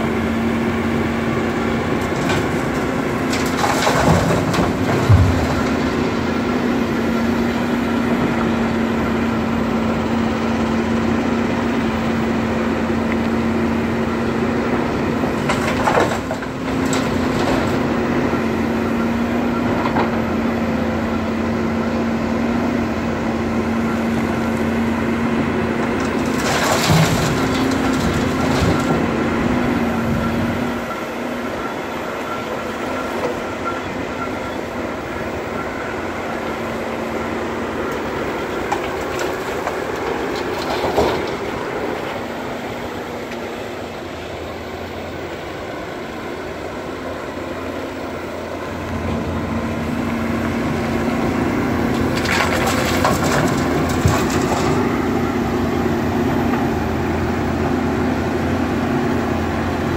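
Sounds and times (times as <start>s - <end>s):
excavator diesel engine running: 0.0s - 59.9s
rocks crunching into truck bed: 1.9s - 6.4s, 25.8s - 29.2s, 51.8s - 55.5s.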